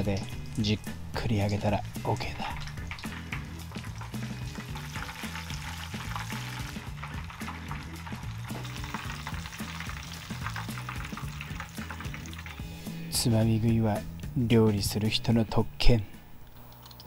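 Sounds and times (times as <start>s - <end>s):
shrimp sizzling in deep fryer oil: 0.2s - 13.1s.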